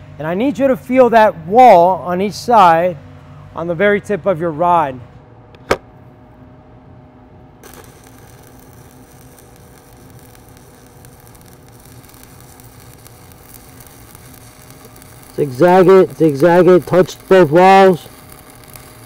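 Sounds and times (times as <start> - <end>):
sharp click: 5.6 - 5.8
welding arc hissing: 7.6 - 19.0.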